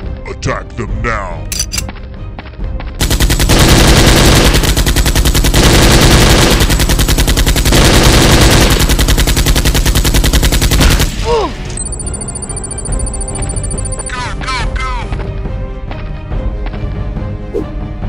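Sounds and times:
automatic gunfire: 0:03.0 - 0:11.2.

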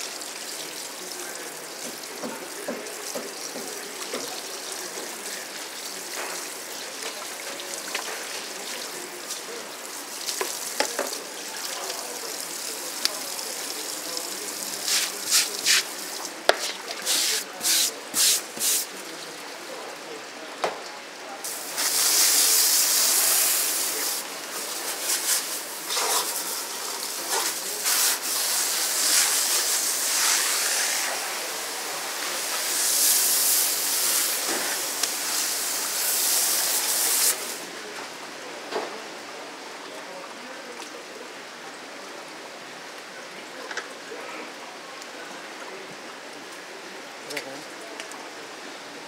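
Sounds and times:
running water splashing: 0:00.0 - 0:19.9, 0:21.4 - 0:37.8
faint steady hiss: 0:00.0 - 0:49.0.

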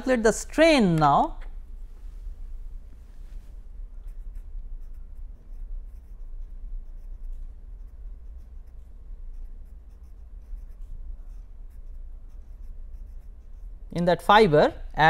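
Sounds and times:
steady low hum: 0:00.0 - 0:15.0
pen scratching on paper: 0:04.0 - 0:13.8.

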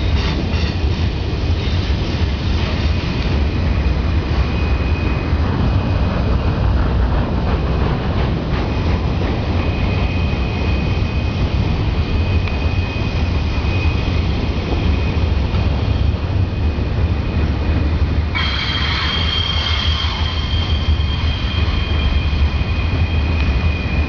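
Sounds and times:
train wheels rumbling on rail: 0:00.0 - 0:24.0
high wheel squeal: 0:02.7 - 0:06.1, 0:09.5 - 0:24.0.

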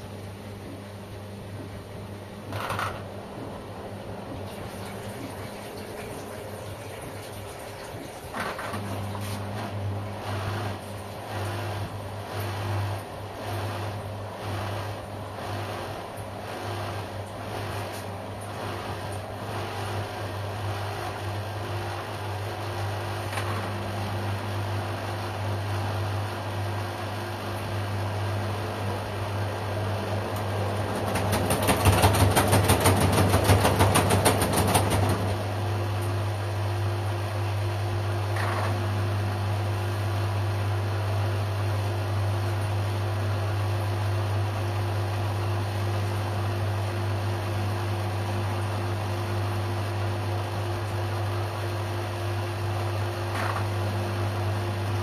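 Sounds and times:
washing machine humming: 0:00.0 - 0:55.0
laundry tumbling in drum: 0:30.5 - 0:35.5.

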